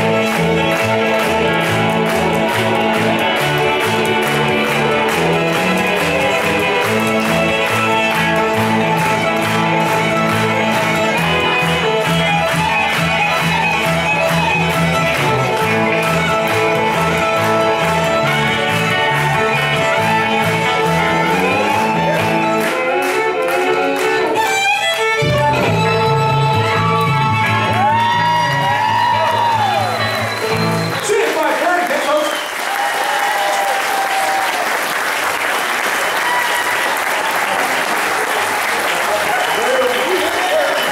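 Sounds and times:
electric guitar: 0:00.0 - 0:31.1
sliding notes: 0:00.0 - 0:31.1
upright bass: 0:00.0 - 0:31.1
fiddles playing: 0:00.0 - 0:33.2, 0:38.6 - 0:40.9.

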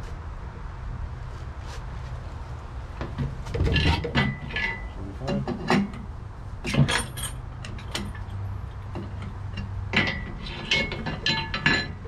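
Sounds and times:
hand tools clinking on steel: 0:06.7 - 0:12.0.

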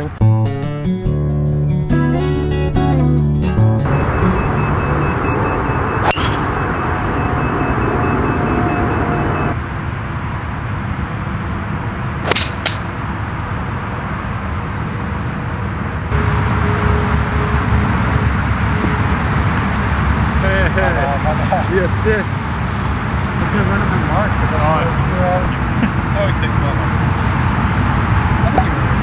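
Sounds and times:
golf club striking ball from grass: 0:06.0 - 0:06.6, 0:12.2 - 0:12.9
golf driver striking ball: 0:06.0 - 0:06.6, 0:12.2 - 0:12.9.

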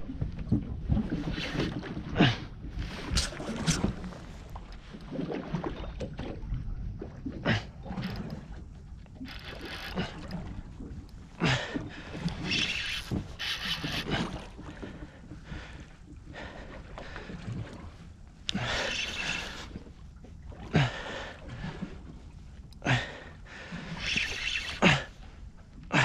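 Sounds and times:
water washing against boat hull: 0:00.0 - 0:26.0
wind: 0:00.0 - 0:26.0.

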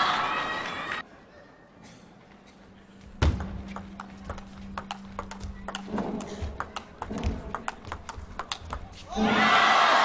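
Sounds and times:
ping pong ball clicking: 0:03.4 - 0:09.0.

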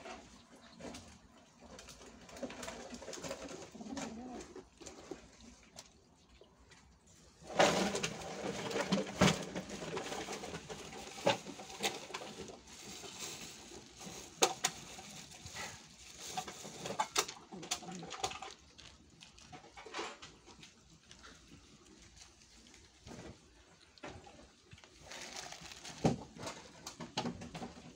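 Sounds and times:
cats chewing wet food: 0:00.2 - 0:27.9
plastic bag crinkling: 0:07.4 - 0:27.6.

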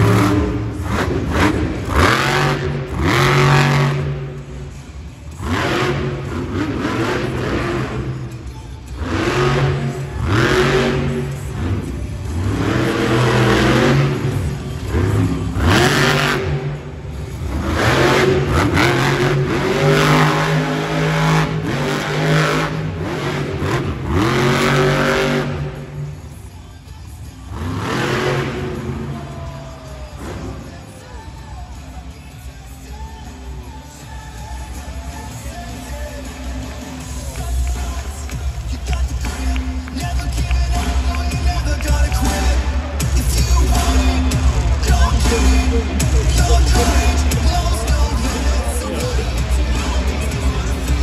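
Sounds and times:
truck engine revving hard: 0:00.0 - 0:26.3, 0:27.4 - 0:29.5, 0:38.8 - 0:51.0.

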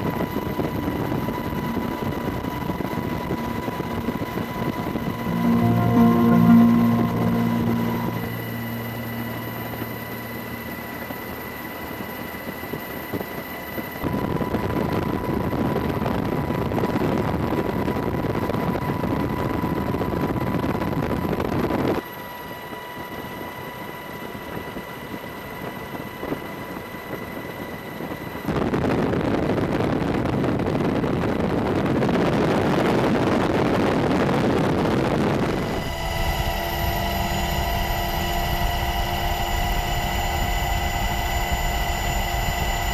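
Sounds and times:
faint steady whine: 0:00.0 - 0:15.1.

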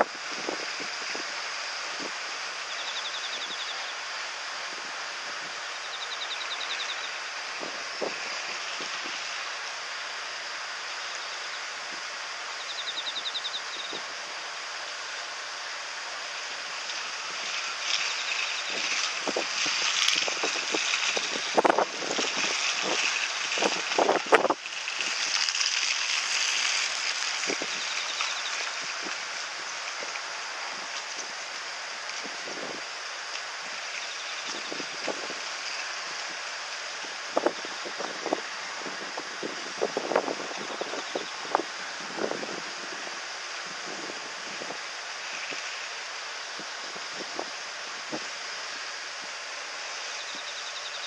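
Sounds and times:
wind rushing over microphone: 0:00.0 - 0:02.7, 0:06.6 - 0:10.8, 0:16.5 - 0:25.4, 0:26.1 - 0:28.0, 0:32.2 - 0:33.8, 0:34.4 - 0:48.8
high chirring trills: 0:02.6 - 0:04.0, 0:05.7 - 0:07.3, 0:12.6 - 0:14.1, 0:17.5 - 0:21.7, 0:27.6 - 0:28.9, 0:50.1 - 0:51.0.

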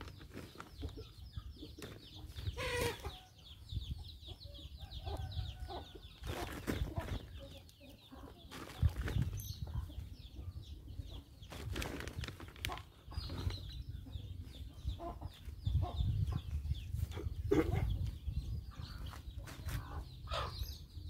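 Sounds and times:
hands packing soil in plastic bag: 0:00.0 - 0:01.0, 0:01.8 - 0:03.0, 0:06.2 - 0:07.3, 0:08.5 - 0:09.5, 0:11.5 - 0:13.7
birds chirping: 0:00.0 - 0:21.0.

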